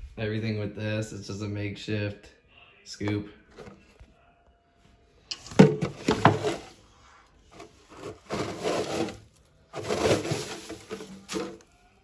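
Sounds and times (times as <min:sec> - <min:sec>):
plastic scoop scraping wood chips: 0:07.6 - 0:11.6.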